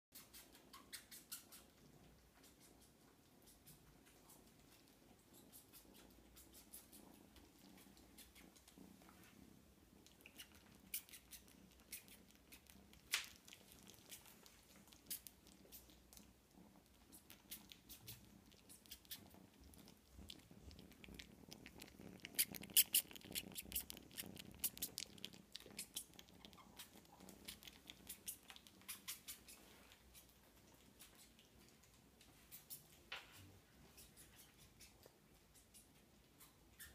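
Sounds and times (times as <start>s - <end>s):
kitten suckling wet clicks: 10.0s - 33.1s.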